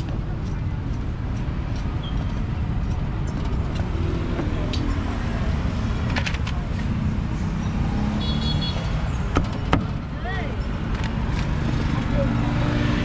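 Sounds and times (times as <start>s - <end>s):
passing traffic rumble: 0.0s - 13.0s
sharp metallic clinks: 0.4s - 6.2s, 8.8s - 13.0s.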